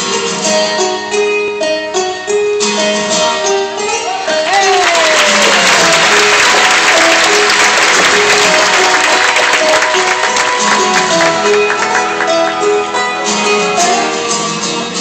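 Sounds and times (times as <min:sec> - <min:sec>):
plucked-string music: 0:00.0 - 0:15.0
audience applauding: 0:04.5 - 0:13.5.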